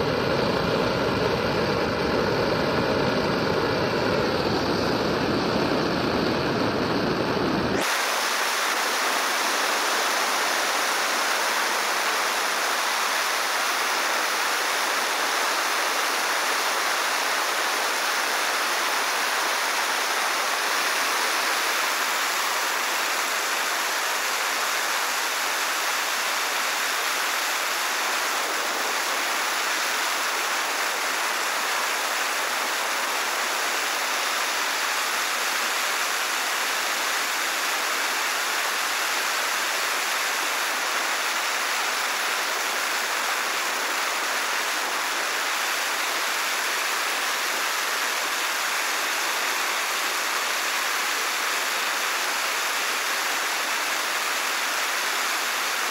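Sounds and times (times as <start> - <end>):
gas torch hissing: 0.0 - 55.9.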